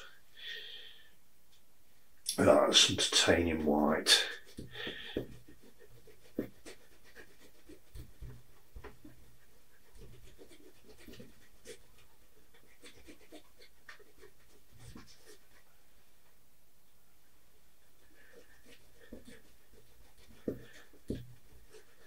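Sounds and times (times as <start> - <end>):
paintbrush dabbing on canvas: 3.2 - 15.7, 18.1 - 22.0.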